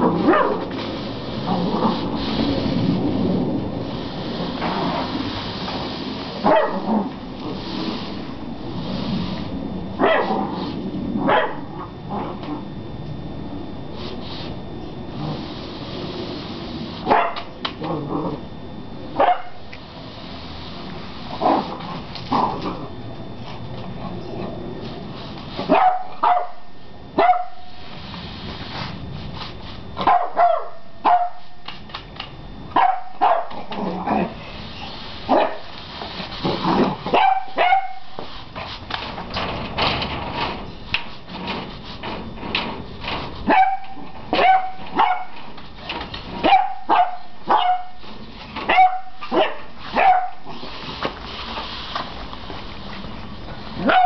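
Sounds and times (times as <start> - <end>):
puppy barking high-pitched: 0.2 - 0.7, 6.4 - 6.9, 10.0 - 10.4, 11.2 - 11.8, 17.1 - 17.4, 19.2 - 19.6, 25.7 - 27.7, 30.0 - 31.4, 32.8 - 33.6, 35.3 - 35.6, 37.1 - 38.1, 43.5 - 45.4, 46.4 - 48.0, 48.7 - 50.5, 53.8 - 54.0.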